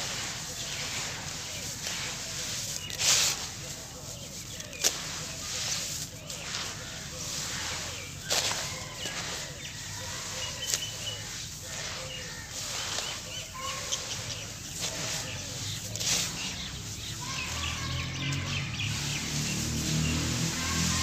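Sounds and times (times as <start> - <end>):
hands crumbling sand-cement mix: 0.0 - 21.0.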